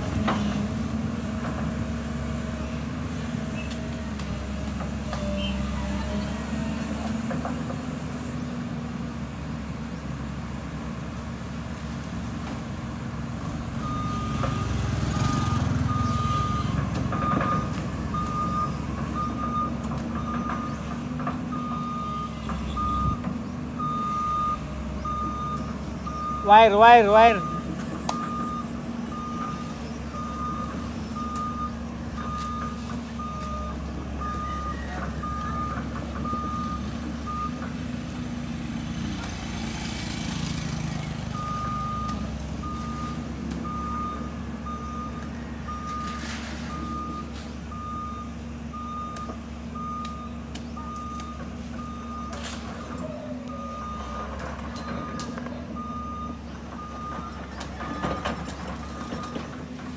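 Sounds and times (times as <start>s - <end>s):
diesel engine running: 0.0s - 59.9s
excavator travel alarm beeping: 13.6s - 38.0s, 41.2s - 59.9s.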